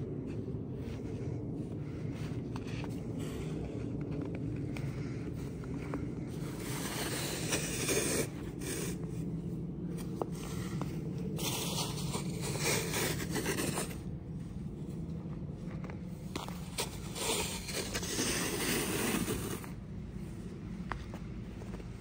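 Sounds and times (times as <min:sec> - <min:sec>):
snow shovels scraping pavement: 0:05.9 - 0:09.0, 0:11.4 - 0:14.0, 0:16.5 - 0:19.8.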